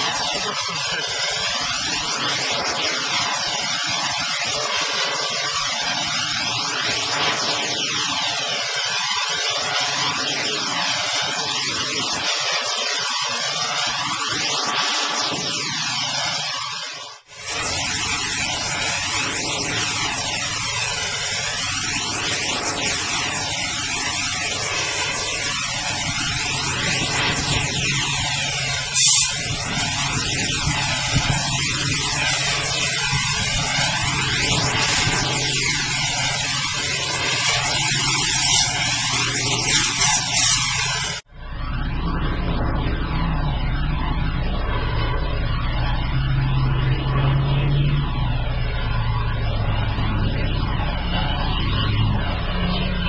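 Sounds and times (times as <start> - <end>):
whooshing water swirl: 0.0 - 53.0.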